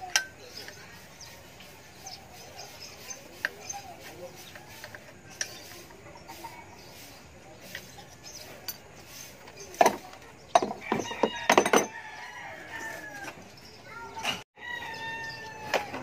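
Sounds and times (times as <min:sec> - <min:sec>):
rooster crowing: 0:10.8 - 0:13.4, 0:14.6 - 0:16.0.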